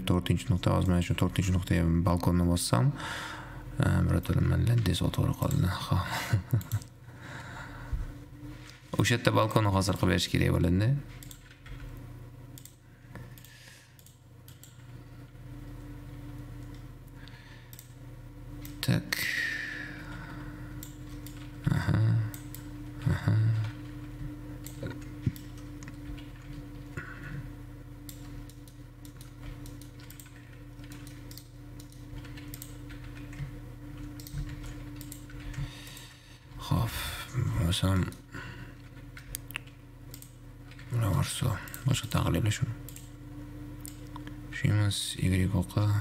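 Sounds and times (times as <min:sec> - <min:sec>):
steady low hum: 0:00.0 - 0:46.0
computer mouse clicks: 0:11.2 - 0:12.0, 0:12.6 - 0:15.0, 0:17.7 - 0:18.0, 0:20.8 - 0:21.6, 0:24.6 - 0:27.0, 0:28.0 - 0:36.1, 0:38.8 - 0:40.9, 0:41.6 - 0:43.1.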